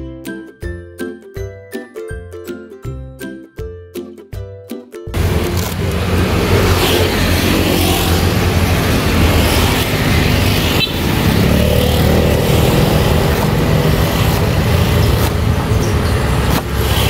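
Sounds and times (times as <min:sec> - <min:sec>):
road traffic noise: 0:05.1 - 0:17.0.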